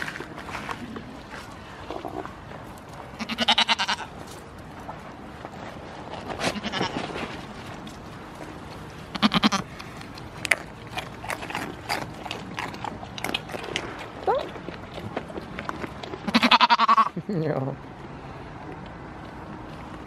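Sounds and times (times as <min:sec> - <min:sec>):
goats bleating: 0:03.2 - 0:04.1, 0:06.5 - 0:07.1, 0:09.1 - 0:09.7, 0:16.3 - 0:17.2.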